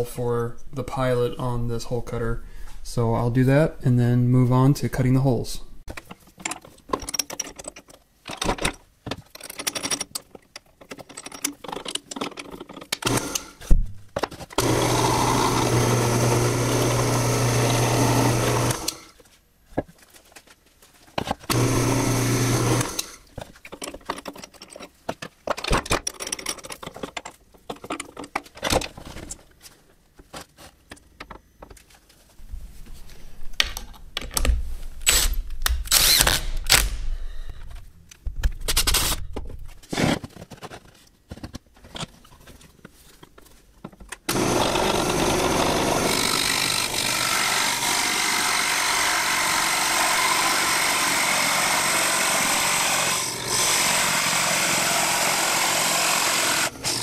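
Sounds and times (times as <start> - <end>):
clicks and knocks of handling: 5.9 - 13.1, 23.3 - 32.2, 33.5 - 34.7, 37.5 - 44.3
handheld drill boring wood: 12.9 - 13.6, 14.6 - 19.2, 21.5 - 23.3, 44.3 - 57.0
drill press motor humming: 13.0 - 13.6, 14.6 - 19.1, 21.5 - 23.2, 44.3 - 57.0.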